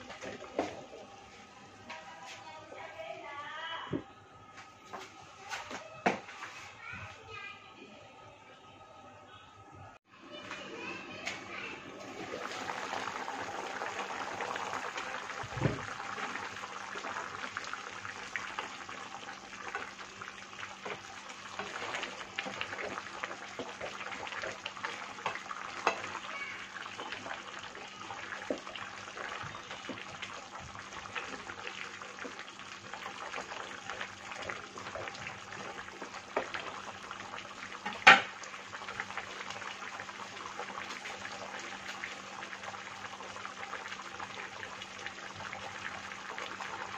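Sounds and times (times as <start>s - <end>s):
sauce sizzling and bubbling: 10.6s - 46.9s
wooden spoon stirring in a pan: 19.4s - 39.6s.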